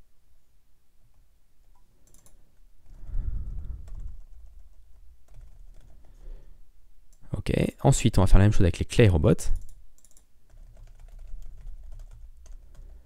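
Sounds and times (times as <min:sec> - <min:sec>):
typing on computer keyboard: 0:01.7 - 0:03.0, 0:03.7 - 0:06.2, 0:09.5 - 0:13.0
low muffled rumble: 0:03.0 - 0:04.3.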